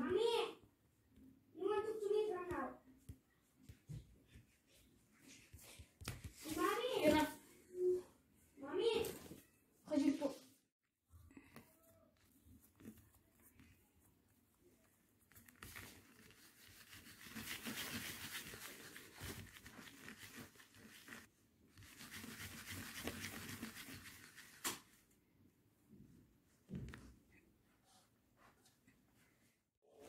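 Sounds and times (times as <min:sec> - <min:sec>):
hand rubbing dough on plastic mat: 0:11.3 - 0:24.6.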